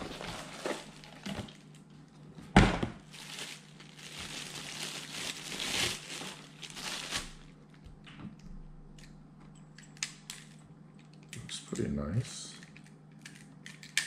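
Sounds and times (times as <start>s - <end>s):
plastic bag crinkling: 0.0s - 1.8s, 3.0s - 7.6s.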